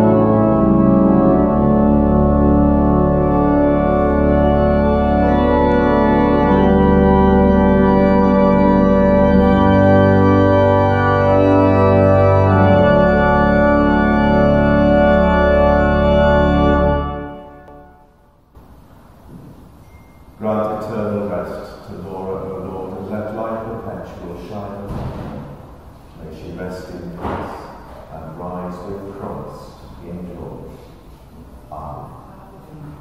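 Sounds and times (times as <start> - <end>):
church organ playing chords: 0.0 - 18.4, 20.3 - 24.8.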